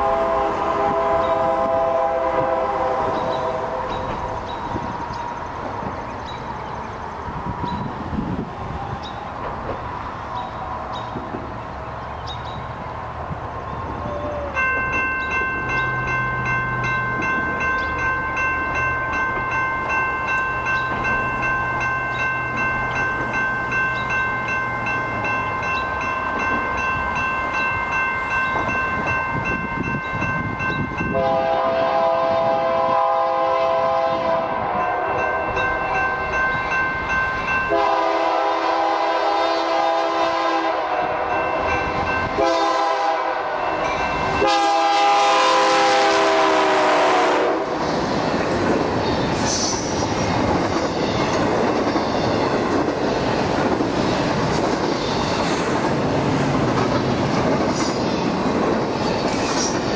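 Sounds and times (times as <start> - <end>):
locomotive horn blasts: 0.0 - 4.2, 31.0 - 35.5, 37.7 - 41.4, 42.3 - 47.8
train rumble: 0.0 - 59.9
railroad crossing bell ringing: 3.1 - 5.4, 14.0 - 32.5, 33.4 - 39.8, 40.4 - 48.0.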